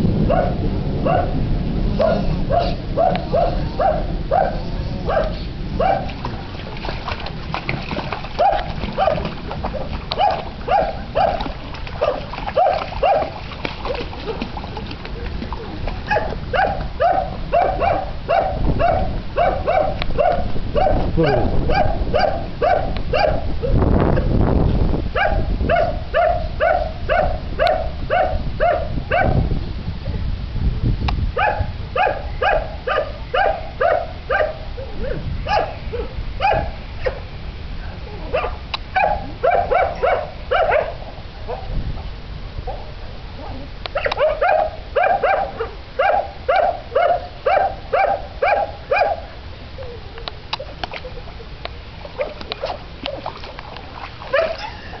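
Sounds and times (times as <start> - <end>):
wind rumble on microphone: 0.0 - 55.0
dog barking: 0.3 - 1.4, 2.0 - 6.2, 8.4 - 13.4, 16.1 - 23.5, 25.2 - 29.4, 31.4 - 37.2, 38.3 - 41.7, 43.9 - 49.3, 54.3 - 54.9.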